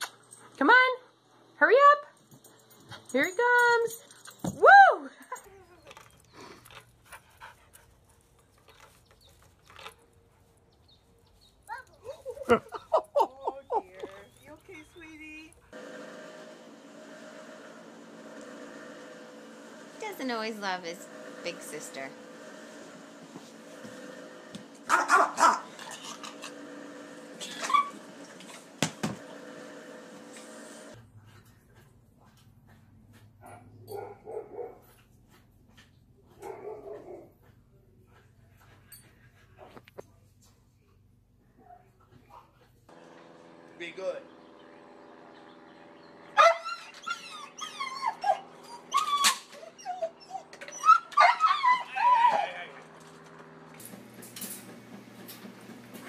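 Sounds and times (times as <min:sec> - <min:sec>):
dog barking: 0:24.9 - 0:25.9, 0:33.4 - 0:34.9, 0:36.4 - 0:37.4, 0:46.4 - 0:46.7
dog whining and yelping: 0:27.4 - 0:28.0, 0:46.4 - 0:52.7.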